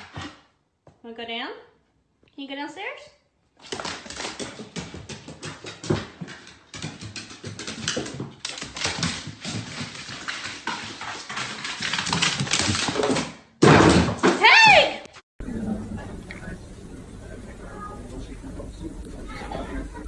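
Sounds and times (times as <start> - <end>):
paws clicking on wooden stairs: 3.6 - 13.4.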